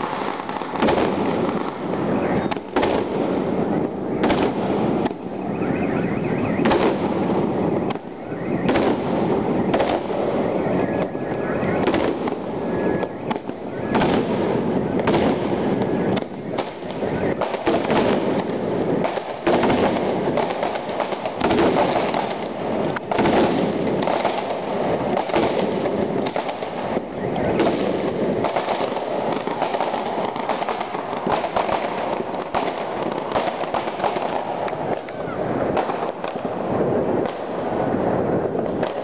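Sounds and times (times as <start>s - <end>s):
fireworks crackling bangs: 0.0s - 39.0s.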